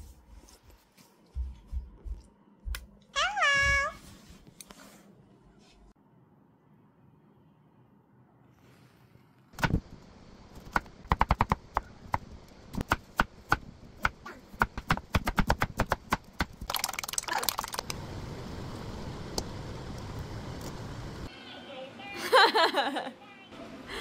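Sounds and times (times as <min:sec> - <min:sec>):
pot boiling: 0:16.3 - 0:21.3.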